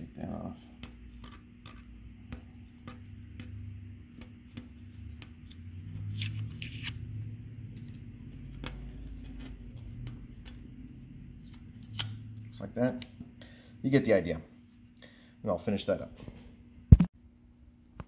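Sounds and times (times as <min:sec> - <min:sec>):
tape being peeled off: 0:05.5 - 0:07.0, 0:11.4 - 0:12.2.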